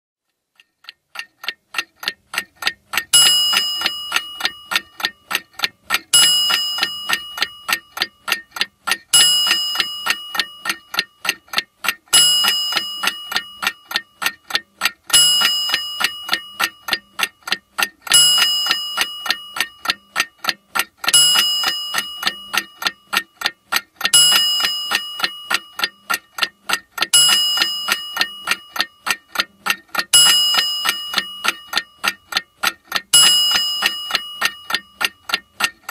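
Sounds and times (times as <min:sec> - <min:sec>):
clock ticking: 0:00.2 - 0:35.9
ringing ding: 0:03.2 - 0:05.0, 0:27.1 - 0:28.8, 0:30.1 - 0:32.0, 0:33.1 - 0:34.9.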